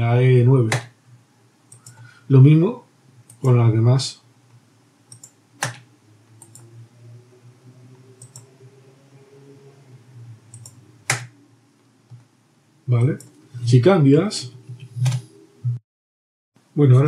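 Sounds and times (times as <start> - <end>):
faint background hum: 0.0 - 15.8, 16.6 - 17.0
keyboard and mouse clicks: 0.7 - 0.9, 1.7 - 2.1, 5.1 - 6.7, 8.2 - 8.5, 10.5 - 11.3, 12.1 - 12.3, 14.7 - 15.2.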